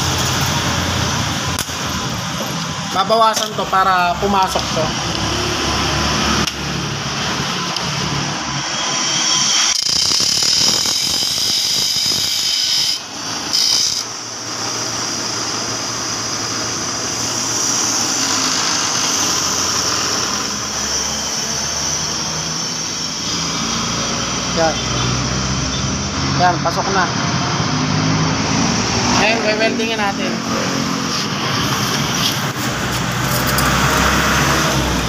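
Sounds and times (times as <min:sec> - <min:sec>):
bench grinder grinding metal: 0:08.6 - 0:15.8, 0:17.0 - 0:24.4.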